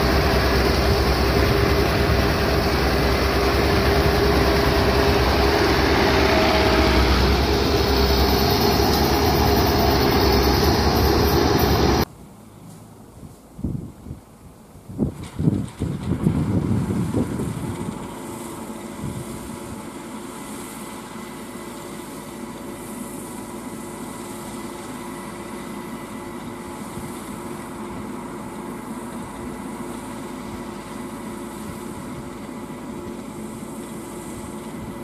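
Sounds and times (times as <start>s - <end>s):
combine harvester engine drone: 0.0s - 12.1s, 15.6s - 35.0s
low rumbles: 0.0s - 12.1s.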